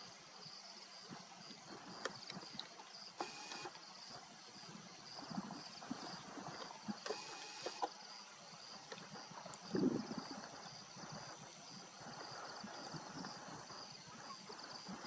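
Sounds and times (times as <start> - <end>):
camera zoom motor whirring: 3.2 - 3.8, 7.0 - 7.9.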